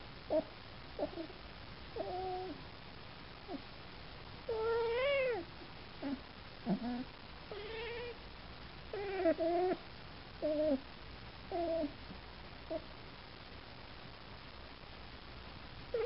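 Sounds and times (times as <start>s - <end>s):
cat meowing: 4.5s - 5.5s.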